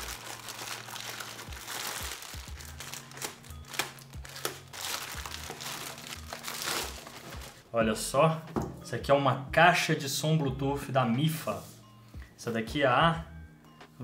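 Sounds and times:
plastic mailer bag tearing: 0.0s - 7.6s
plastic wrapping crinkling: 0.0s - 7.7s
background music: 0.0s - 14.0s.

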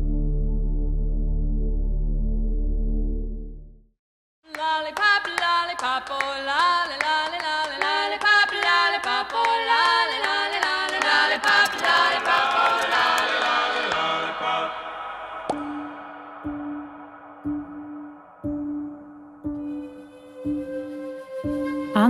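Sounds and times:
light musical accompaniment: 18.4s - 22.0s
person singing a gliding melody: 19.5s - 22.0s.

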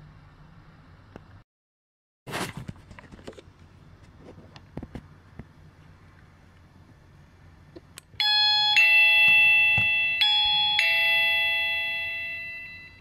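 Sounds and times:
bell push click: 8.2s - 12.8s
two-note doorbell chime: 8.2s - 13.0s.

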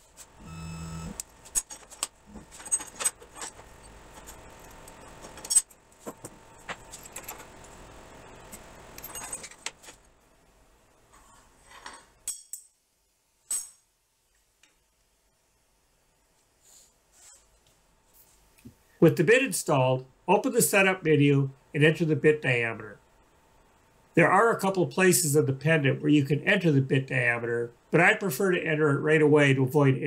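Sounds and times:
motor hum: 0.4s - 1.3s
metal wrenches clinking: 9.0s - 9.6s.

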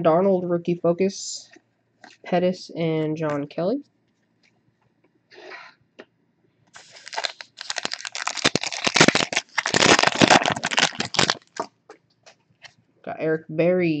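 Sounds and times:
card pack wrapper crinkling: 6.8s - 11.7s.

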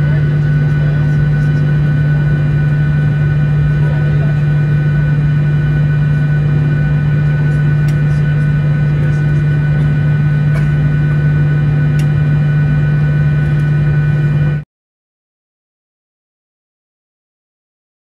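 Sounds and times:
airliner cabin drone: 0.0s - 14.6s.

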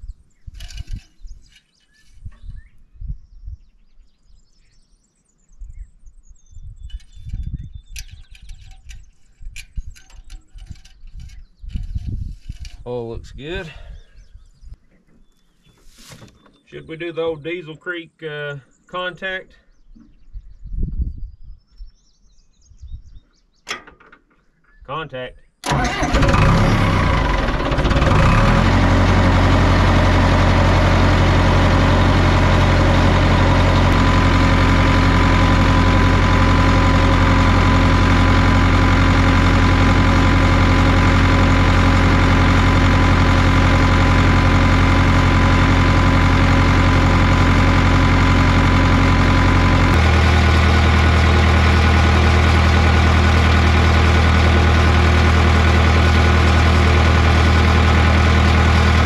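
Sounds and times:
diesel engine idling: 25.6s - 59.0s.

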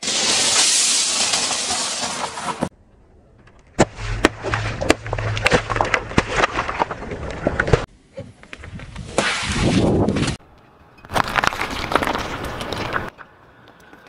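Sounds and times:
plastic bottles cracking and popping: 11.1s - 13.1s.

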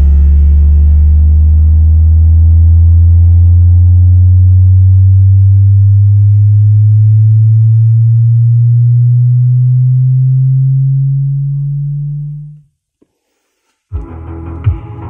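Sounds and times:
rising low sine sweep tone: 0.0s - 12.7s.

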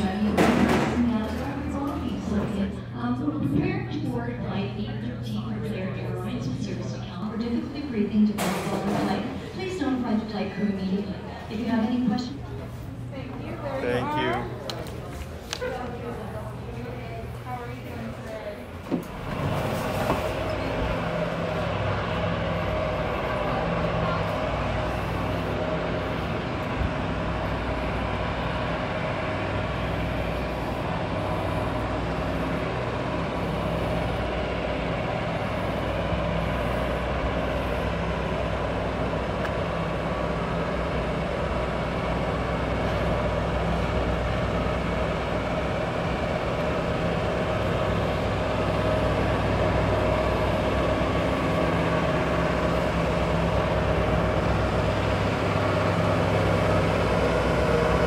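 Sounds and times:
aircraft and ground equipment hum: 0.0s - 58.0s.

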